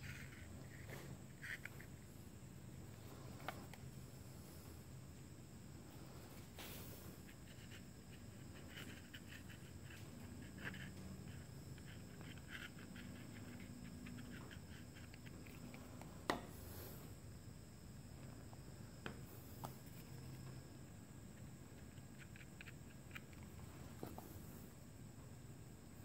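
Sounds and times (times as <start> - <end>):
faint rubbing and scratching: 0.0 - 4.8, 5.9 - 17.2.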